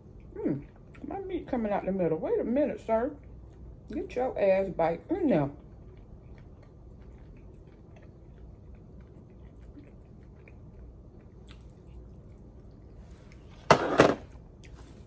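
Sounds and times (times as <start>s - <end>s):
person chewing: 5.6s - 13.5s.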